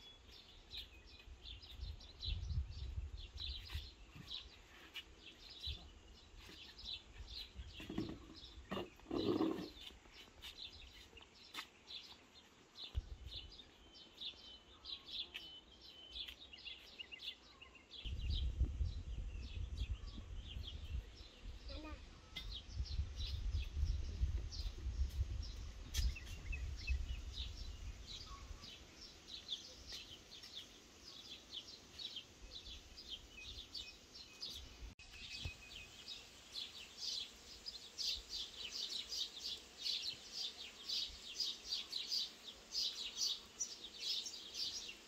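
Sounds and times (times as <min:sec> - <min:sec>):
small birds chirping: 0:00.0 - 0:45.0.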